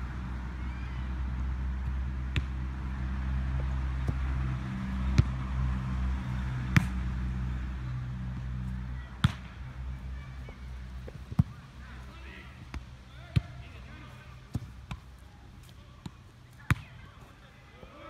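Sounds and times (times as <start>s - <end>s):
foot kicking football thuds: 9.2s - 9.5s.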